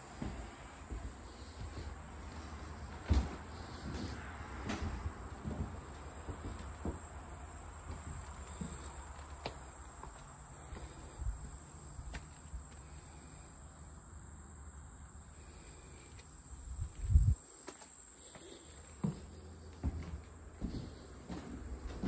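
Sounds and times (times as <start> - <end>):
footsteps: 0.0 - 12.9, 16.8 - 22.0
wind rumble: 16.7 - 17.4.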